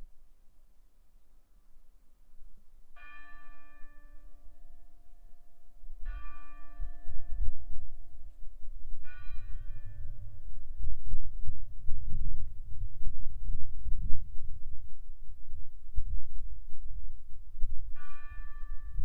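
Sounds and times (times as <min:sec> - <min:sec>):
church bell ringing: 0:02.9 - 0:08.4, 0:09.0 - 0:10.7, 0:18.0 - 0:19.0
low rumble: 0:06.9 - 0:19.0.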